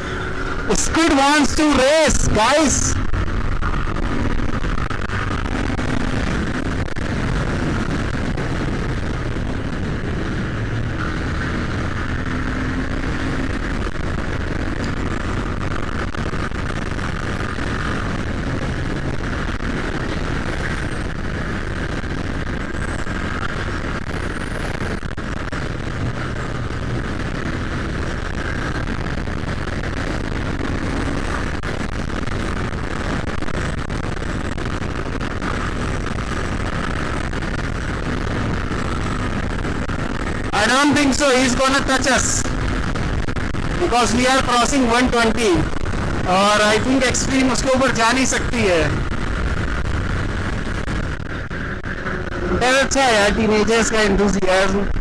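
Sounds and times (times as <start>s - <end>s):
motorcycle engine running: 0.0s - 1.1s, 49.0s - 54.3s
wind rushing over microphone: 0.0s - 55.0s.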